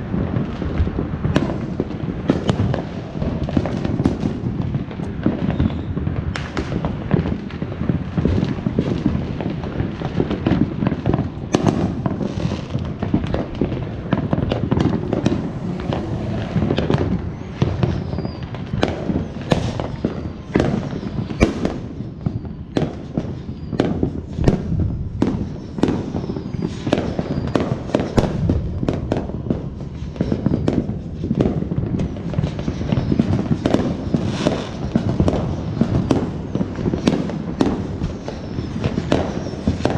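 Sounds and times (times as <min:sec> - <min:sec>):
firework whistles: 0:00.0 - 0:39.9
fireworks bangs and pops: 0:00.0 - 0:39.9
low rumble: 0:13.2 - 0:18.1, 0:24.4 - 0:26.2, 0:28.2 - 0:30.2.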